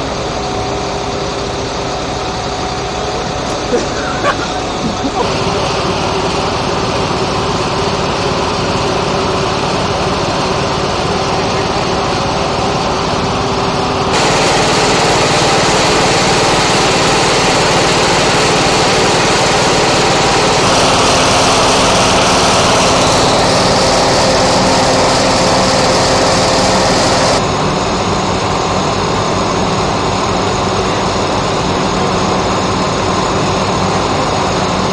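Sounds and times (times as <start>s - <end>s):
blower air rush: 0.0s - 34.9s
small gasoline engine running: 0.0s - 34.9s.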